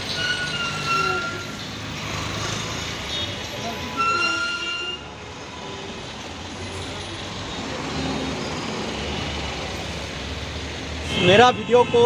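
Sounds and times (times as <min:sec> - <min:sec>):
city road traffic: 0:00.0 - 0:12.0
vehicle horn: 0:03.9 - 0:05.1.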